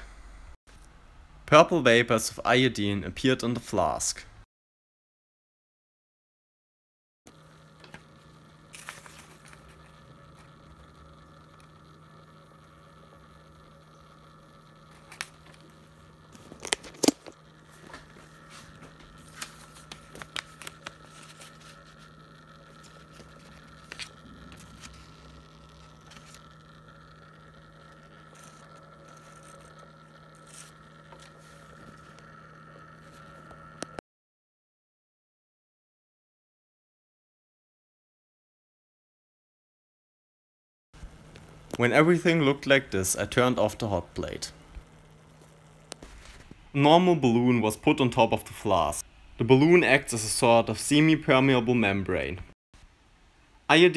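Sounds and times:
steady low hum: 0.0 - 4.4, 7.3 - 34.0, 41.0 - 53.9
paper and gloves crinkling: 17.7 - 22.1, 22.8 - 25.4.

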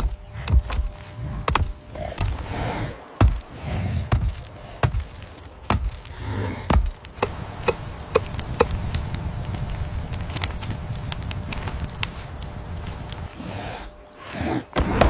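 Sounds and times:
heavy chopping thuds: 0.0 - 2.5, 3.2 - 8.8.

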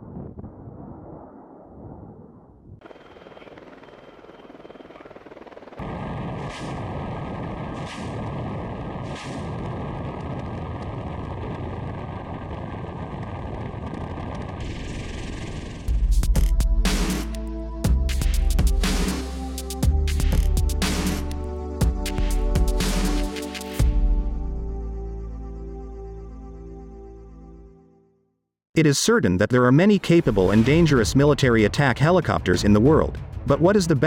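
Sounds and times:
wind: 0.0 - 15.9
helicopter rotor and engine: 2.8 - 8.2
rocket pod firing: 5.8 - 15.9.

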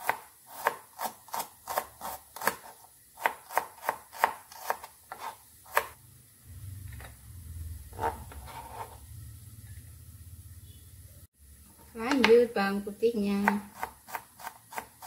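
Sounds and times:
knife chopping on cutting board: 0.0 - 6.0, 13.4 - 15.0.

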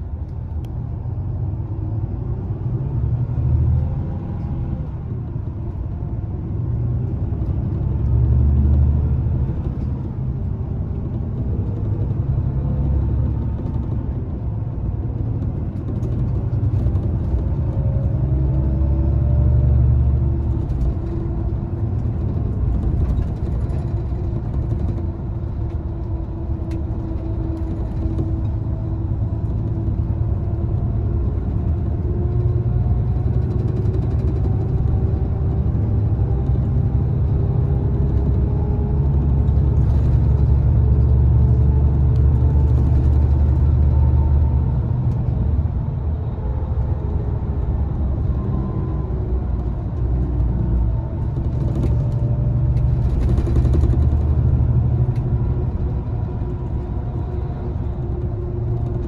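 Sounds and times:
diesel engine droning: 0.0 - 59.0
tyre and road noise: 0.0 - 59.0.

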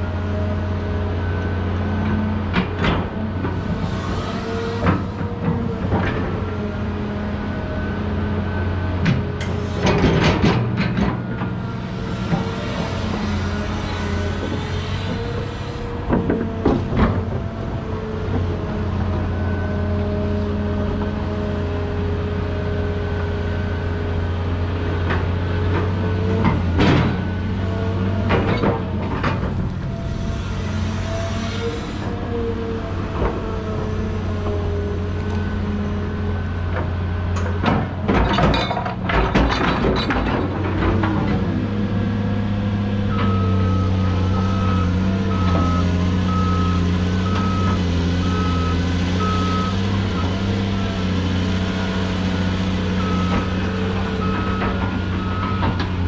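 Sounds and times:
excavator diesel engine running: 0.0 - 56.0
metallic clanks and knocks: 37.4 - 41.4
reversing alarm beeping: 43.0 - 51.1, 52.9 - 56.0.

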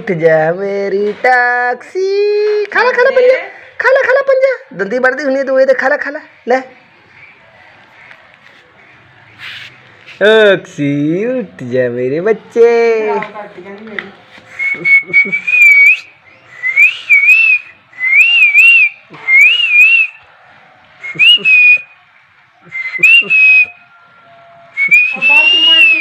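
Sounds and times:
person whistling: 14.5 - 20.2, 21.0 - 21.9, 22.7 - 23.8, 24.8 - 26.0.

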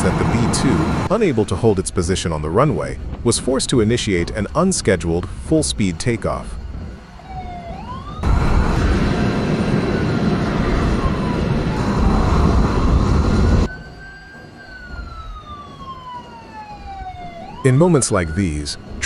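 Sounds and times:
siren wailing: 6.0 - 19.0
loud rushing noise: 8.2 - 13.7.

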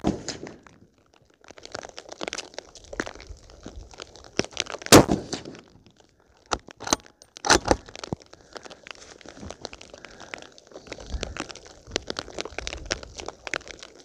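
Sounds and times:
rain ticking on microphone: 0.5 - 5.0, 5.6 - 14.0
rifle shot: 4.9 - 5.6
rifle bolt being worked: 6.8 - 7.8.

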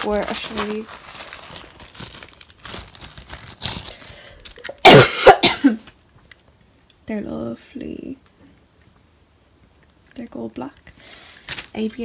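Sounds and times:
packaging rustling: 0.0 - 4.7, 11.2 - 12.0
person coughing: 4.6 - 5.9.

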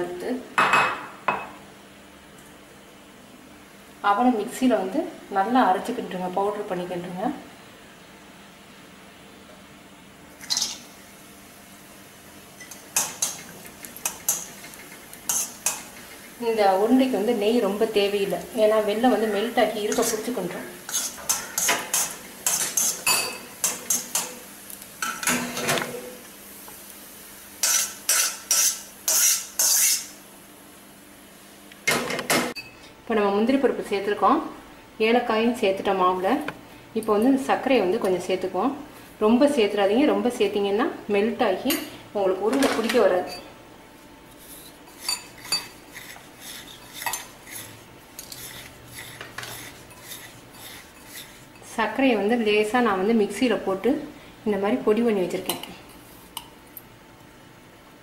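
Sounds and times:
spoon scraping pan: 12.6 - 16.4, 19.1 - 24.2, 27.6 - 30.1, 44.4 - 51.7.

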